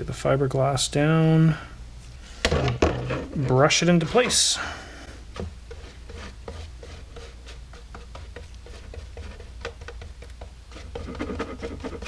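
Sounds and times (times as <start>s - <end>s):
low steady hum: 0.0s - 12.0s
brush dabbing and scratching: 5.3s - 12.0s.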